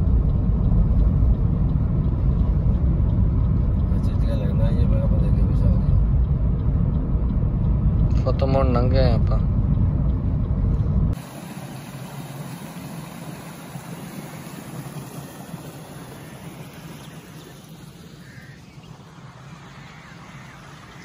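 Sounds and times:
car driving rumble from inside: 0.0 - 11.2
steady outdoor hiss: 11.2 - 21.0
distant bird calls: 11.3 - 21.0.

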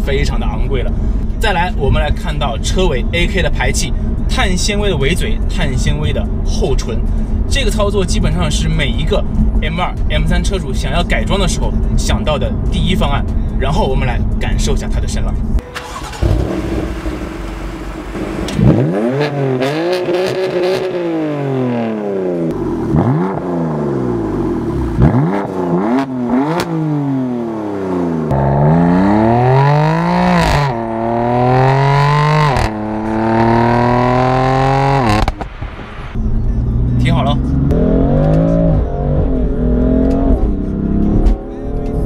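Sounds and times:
car accelerating and shifting gears: 15.4 - 42.0
car engine revving: 15.6 - 42.0
exhaust pops: 31.6 - 35.9.

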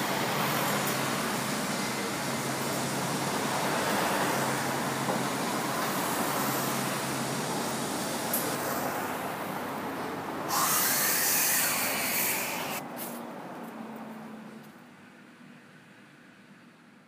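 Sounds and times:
rumbling hissing background noise: 0.0 - 13.3.

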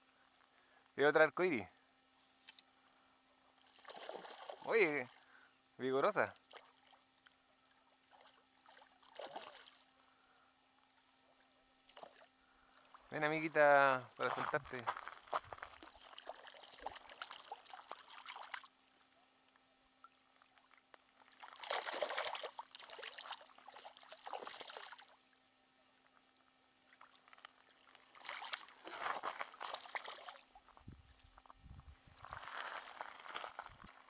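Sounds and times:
fish splashing in water: 3.6 - 5.2, 8.0 - 9.9, 15.7 - 18.8, 20.3 - 25.2, 26.8 - 30.7.

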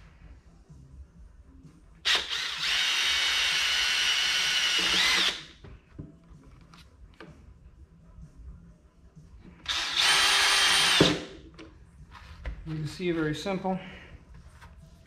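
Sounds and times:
cordless drill boring into plastic: 2.1 - 5.4, 9.7 - 11.2.

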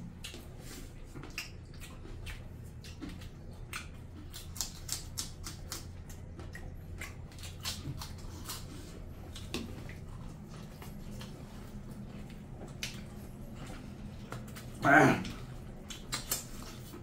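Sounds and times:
chewing and lip-smacking: 0.0 - 17.0
low steady hum: 0.0 - 17.0.

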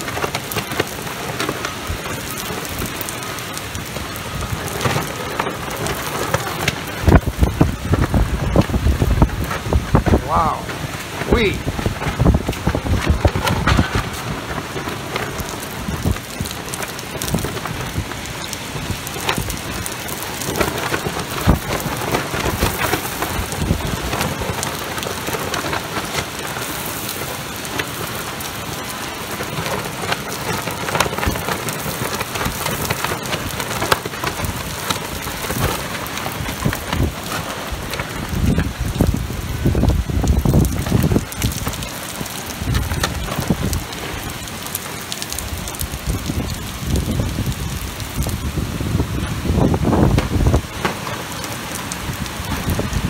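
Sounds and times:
heavy rain pouring: 0.0 - 53.0
wind buffeting microphone: 0.0 - 53.0.

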